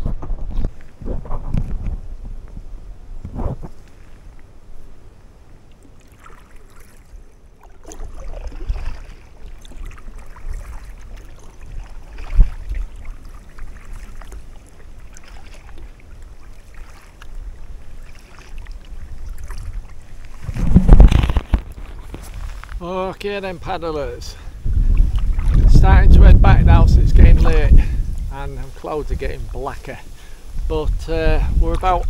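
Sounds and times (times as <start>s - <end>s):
paddle strokes splashing: 3.2s - 26.2s.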